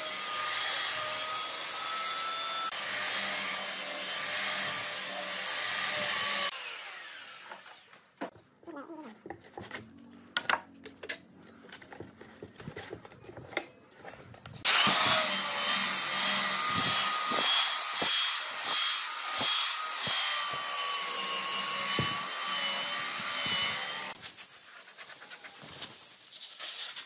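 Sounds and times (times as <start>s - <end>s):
belt sander on wood: 14.6s - 24.2s.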